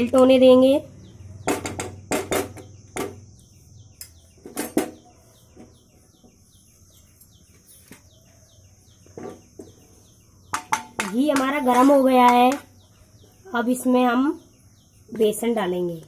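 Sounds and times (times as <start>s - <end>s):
bird chirping: 0.0s - 16.0s
loud knocks: 1.4s - 3.3s.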